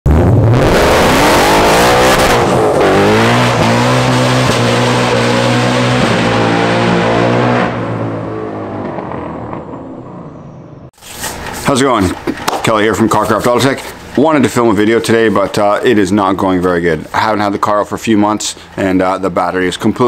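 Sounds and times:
car engine revving hard: 0.1 - 10.0.

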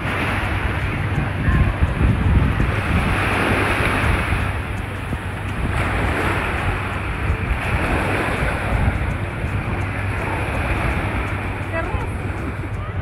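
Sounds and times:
small waves washing on sand: 0.0 - 13.0
wind rumbling on microphone: 0.0 - 13.0.

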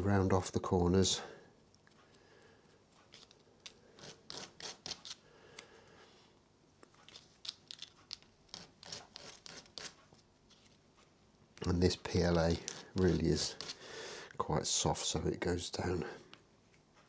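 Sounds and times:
plastic scratching on sanding disc: 12.4 - 13.8.

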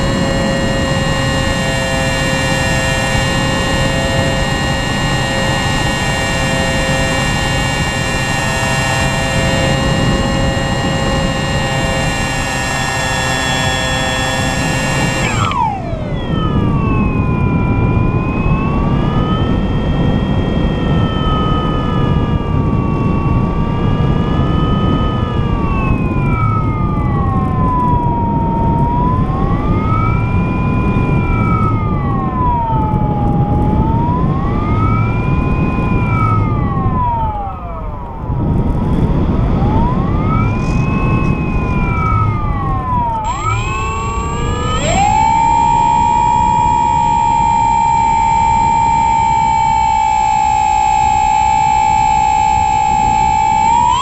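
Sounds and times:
model aircraft motor whining: 0.0 - 54.0
wind rush: 15.3 - 53.8.

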